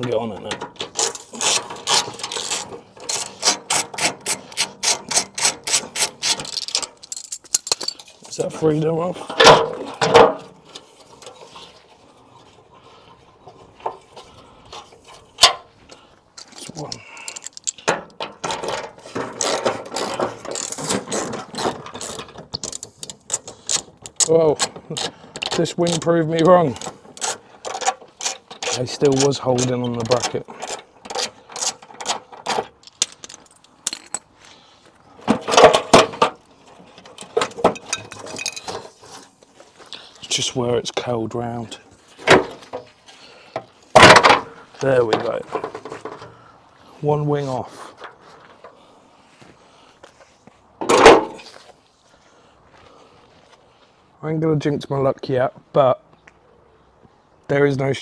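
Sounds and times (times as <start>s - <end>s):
hands and tool scraping metal: 0.0s - 15.7s, 16.4s - 34.6s
metallic clinks and rattles: 5.1s - 8.3s, 30.2s - 34.6s, 37.1s - 38.8s.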